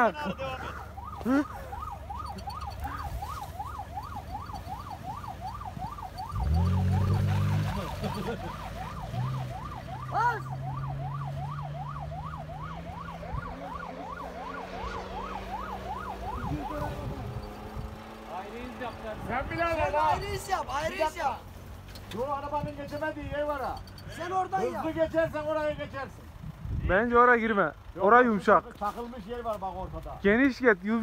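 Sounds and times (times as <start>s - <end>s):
electronic siren yelping: 0.6s - 18.0s
car engine revving: 1.2s - 24.1s.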